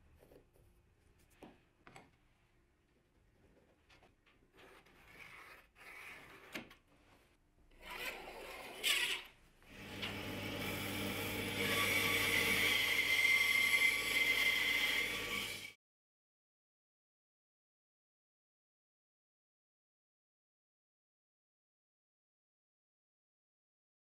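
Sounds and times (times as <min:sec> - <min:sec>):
bandsaw cutting wood: 0:07.9 - 0:15.8.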